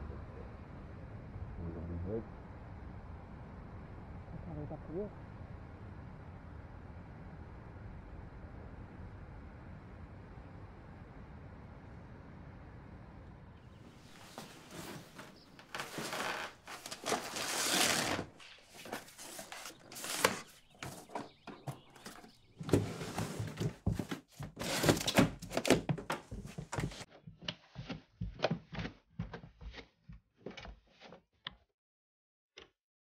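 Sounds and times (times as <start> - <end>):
cardboard record sleeves rustling: 13.8 - 27.1.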